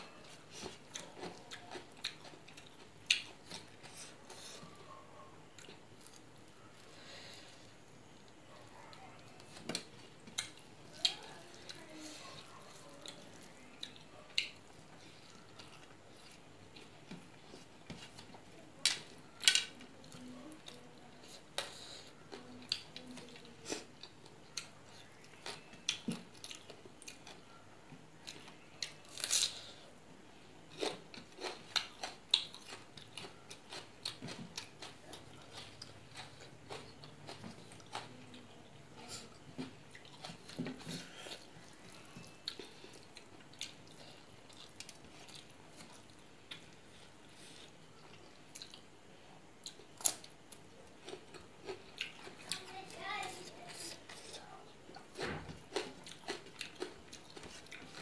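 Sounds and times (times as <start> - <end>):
chewing and mouth smacks: 0.2 - 4.0, 39.4 - 48.9, 49.6 - 52.6, 54.9 - 58.0.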